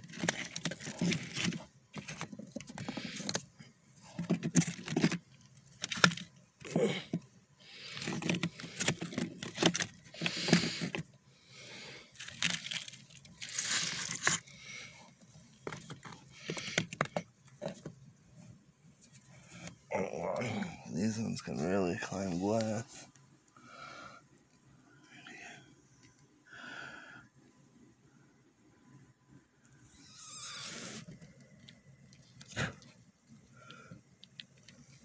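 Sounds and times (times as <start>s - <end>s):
rustling and crackling of bark and moss: 0.0s - 6.4s, 12.1s - 14.6s.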